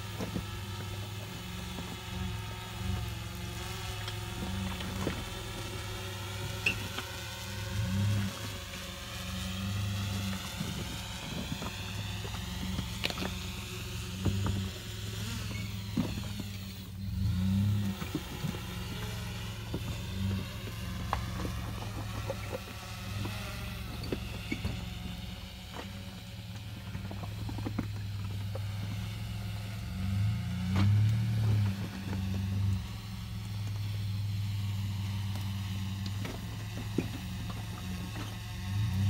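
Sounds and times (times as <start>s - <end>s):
truck engine running at low revs: 0.0s - 39.0s.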